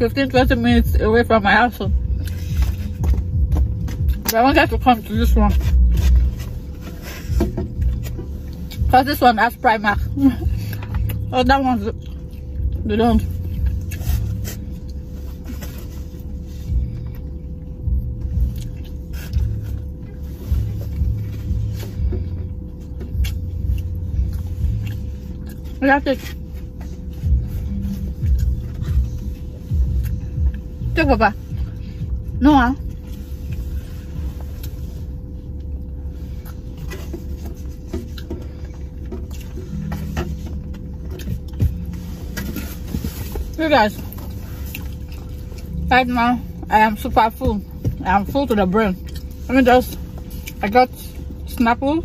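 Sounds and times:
faint constant hum: 0.0s - 52.0s
low rumble in car cabin: 0.0s - 52.0s.

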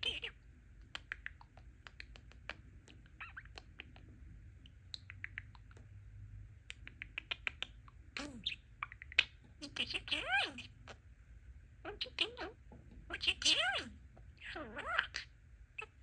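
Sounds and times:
budgerigar chattering: 0.0s - 0.4s, 7.0s - 11.0s, 11.9s - 16.0s.

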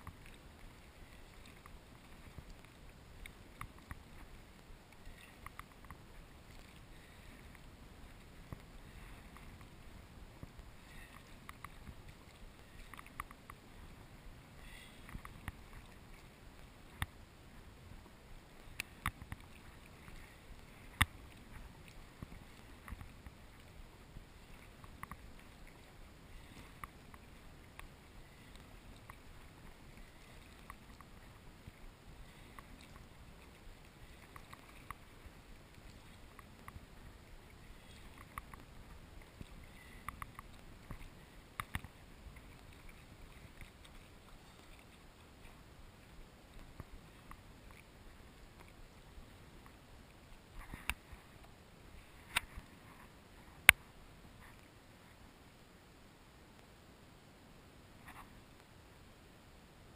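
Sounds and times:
paddle and wave slaps: 0.0s - 14.0s, 18.6s - 45.6s
water washing along hull: 0.0s - 55.6s.

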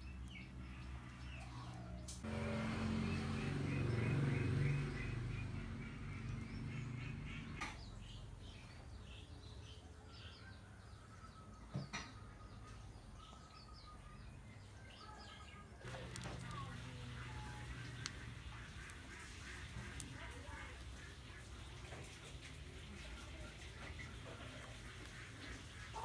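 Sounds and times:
birds chirping: 0.0s - 26.0s
rapid ticks: 15.9s - 26.0s.

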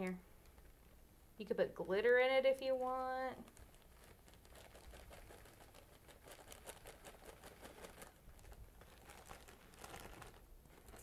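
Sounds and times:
flakes pattering: 1.8s - 11.0s
plastic bag rustling: 3.4s - 11.0s.

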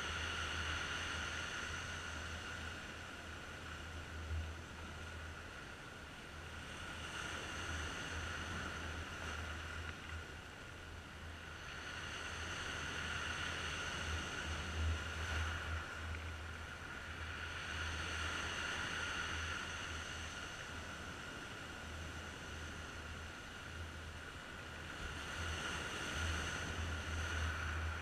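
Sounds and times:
sea waves breaking over rocks: 11.4s - 28.0s.

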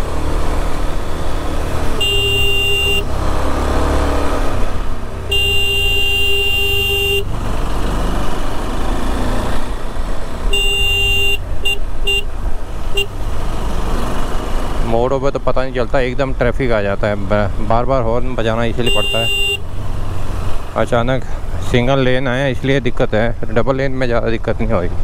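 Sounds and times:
motorcycle engine rumbling: 0.0s - 25.0s
motorcycle horn honking: 1.9s - 3.1s, 5.2s - 7.3s, 10.5s - 12.3s, 12.9s - 13.2s, 18.8s - 19.6s.

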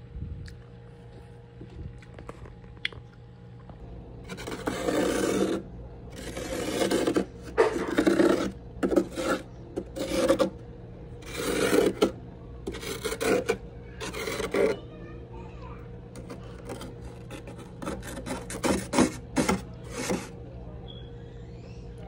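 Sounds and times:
plastic utensil scraping frost: 4.2s - 10.6s, 11.2s - 14.8s, 16.1s - 20.4s.

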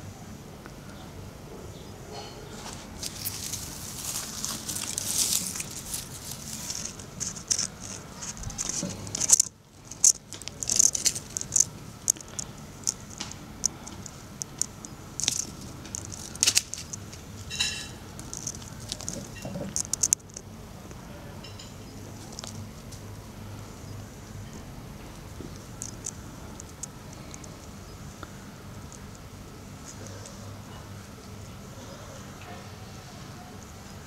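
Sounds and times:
leaves rustling and crackling: 2.2s - 31.8s
paws scratching: 2.5s - 20.4s.

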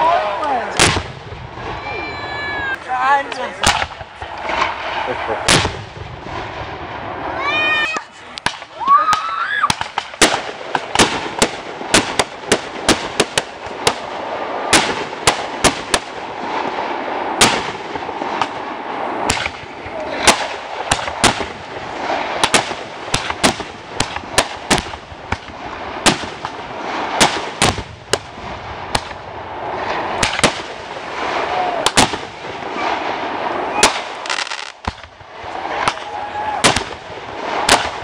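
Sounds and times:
fireworks bangs: 0.0s - 38.0s
fireworks crackling: 0.0s - 38.0s
rising firework whistle: 1.6s - 2.8s.

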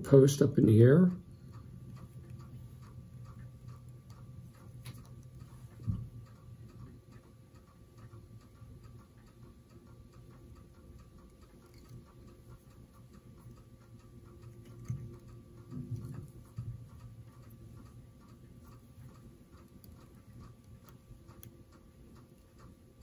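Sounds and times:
faint ticking: 0.0s - 23.0s
steady low hum: 0.0s - 23.0s.

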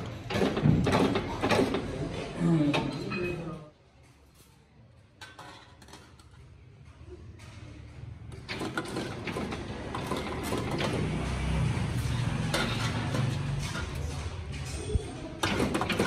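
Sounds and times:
spot welder buzzing and clacking: 8.5s - 14.5s.

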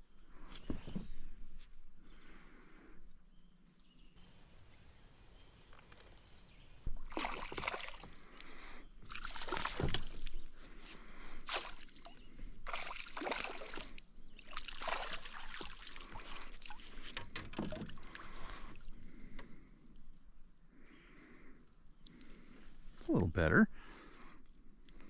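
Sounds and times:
fish thrashing in water: 7.0s - 8.4s, 9.0s - 10.6s, 11.4s - 18.9s
landing net dipped in water: 7.0s - 8.4s, 9.0s - 10.5s, 11.4s - 18.9s.

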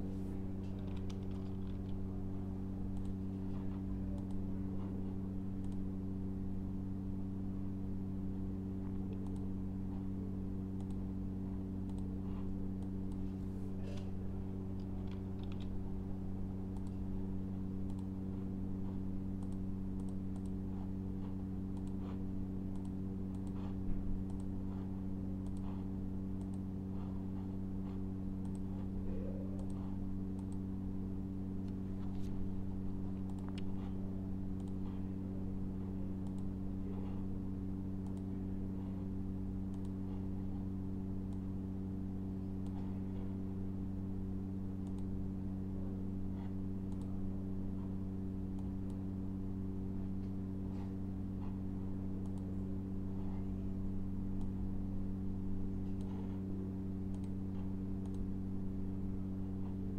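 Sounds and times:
steady low hum: 0.0s - 59.9s
mouse and keyboard clicks: 0.6s - 2.0s, 14.7s - 15.8s.

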